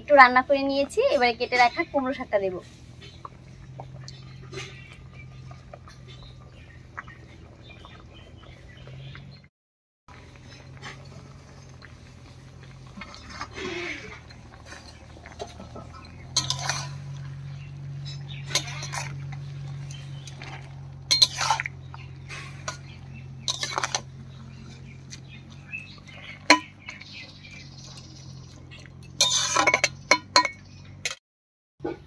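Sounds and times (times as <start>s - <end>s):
metal utensil scraping metal pot: 2.6s - 8.0s, 10.1s - 31.2s
low steady hum: 10.1s - 31.2s.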